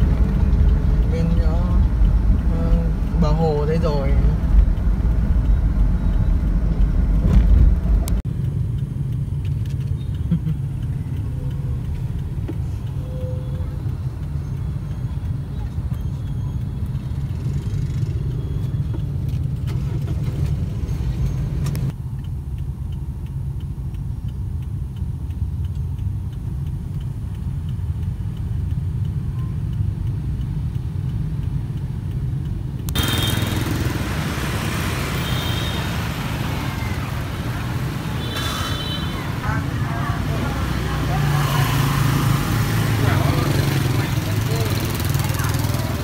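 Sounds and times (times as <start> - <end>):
faint even ticking: 0.0 - 19.6, 21.8 - 46.0
scooter engine and road rumble: 0.0 - 46.0
street noise: 0.0 - 46.0
traffic hiss: 21.3 - 46.0.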